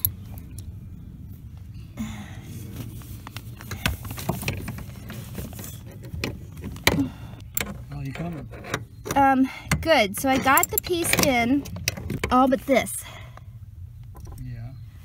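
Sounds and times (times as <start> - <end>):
low steady hum: 0.0 - 15.0
metallic clicks of hand tools: 9.1 - 12.0.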